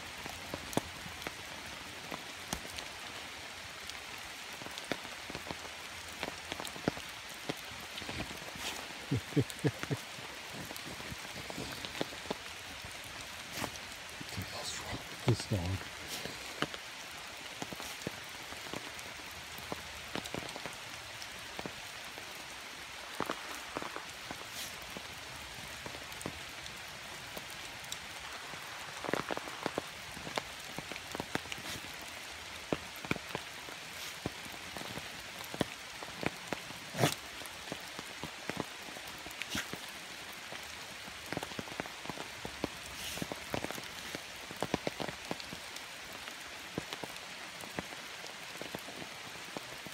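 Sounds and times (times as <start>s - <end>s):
steady hiss: 4.1s - 36.4s.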